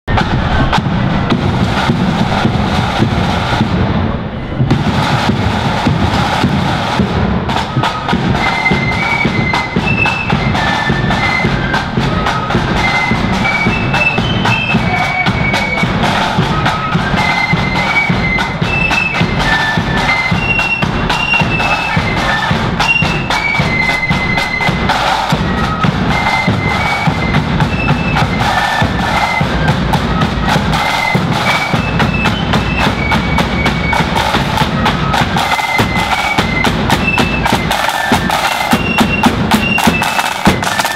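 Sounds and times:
steady bass drum: 0:00.0 - 0:08.4
flutes playing melody: 0:00.1 - 0:40.9
rattling snare drums: 0:00.1 - 0:40.9.

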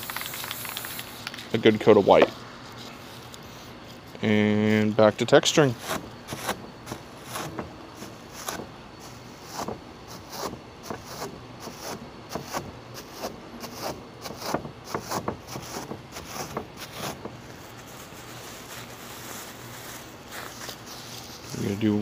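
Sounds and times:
plastic bag crinkling: 0:00.0 - 0:01.7.

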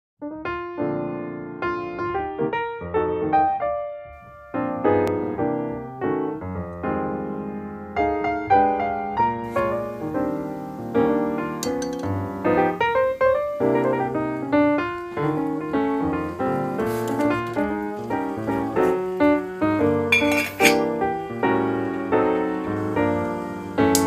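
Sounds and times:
solo piano music: 0:00.2 - 0:24.0
light clinks: 0:11.6 - 0:12.1.

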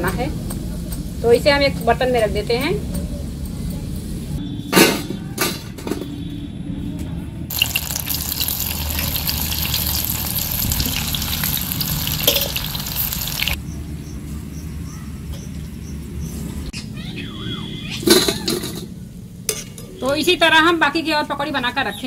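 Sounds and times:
deep-frying sizzle with crackles: 0:07.5 - 0:13.6.

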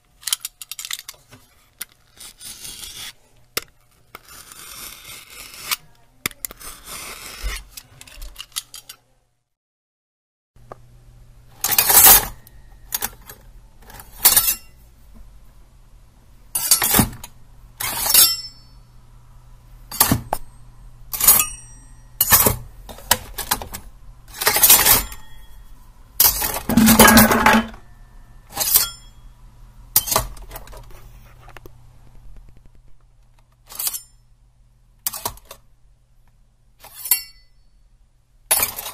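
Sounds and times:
faint low hum: 0:10.6 - 0:38.6
knife metallic scrapes and clinks: 0:14.2 - 0:14.8, 0:16.6 - 0:17.0, 0:17.8 - 0:18.8, 0:21.1 - 0:22.5, 0:28.5 - 0:29.2, 0:30.0 - 0:30.3, 0:33.7 - 0:34.2, 0:36.8 - 0:37.7, 0:38.5 - 0:38.9.

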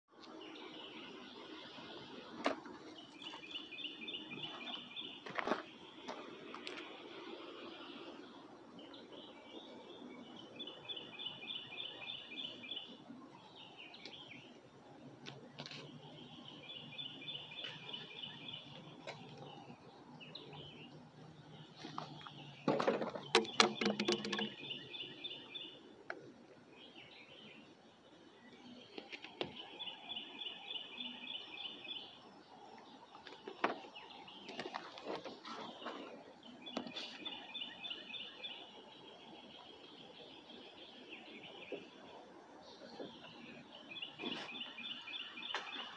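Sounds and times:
soft bird chirps: 0:00.2 - 0:45.9
clattering noise: 0:22.0 - 0:24.6.

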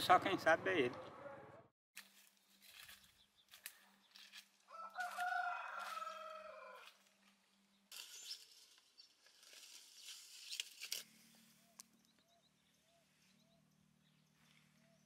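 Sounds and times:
leafy branches rustling: 0:02.0 - 0:11.9
rooster crowing: 0:04.7 - 0:07.0.

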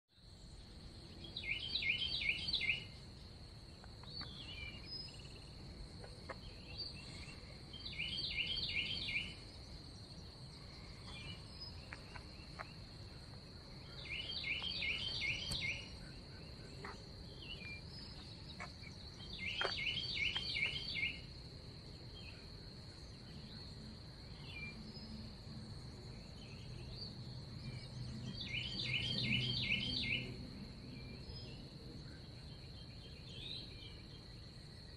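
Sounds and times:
songbird singing rapid phrase: 0:01.1 - 0:03.0, 0:04.0 - 0:10.4, 0:13.8 - 0:21.3, 0:26.4 - 0:31.6.

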